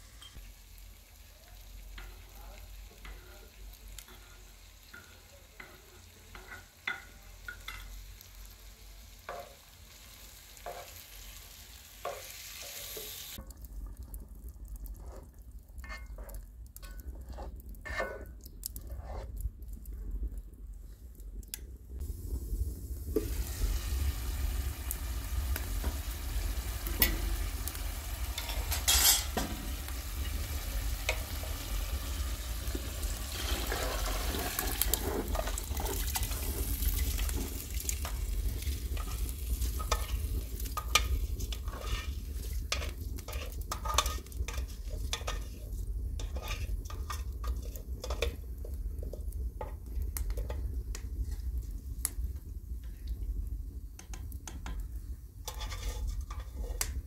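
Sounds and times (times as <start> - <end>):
steady hiss: 0.0 - 13.4, 21.9 - 55.5
spoon scraping metal bowl: 46.2 - 48.2, 55.5 - 56.8.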